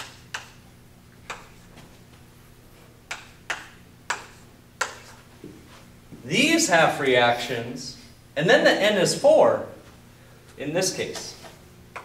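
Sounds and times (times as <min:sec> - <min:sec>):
chalk tapping on blackboard: 0:00.0 - 0:00.6, 0:01.2 - 0:01.9, 0:03.1 - 0:05.2.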